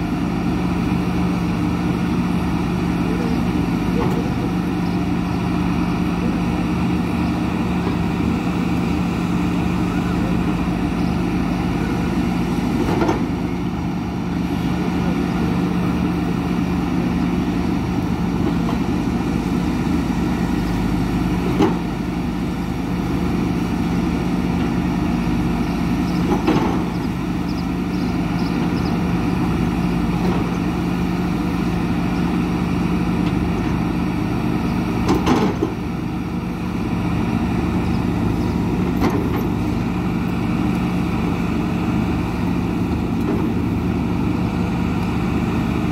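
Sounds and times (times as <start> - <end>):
excavator diesel engine running: 0.0 - 45.9.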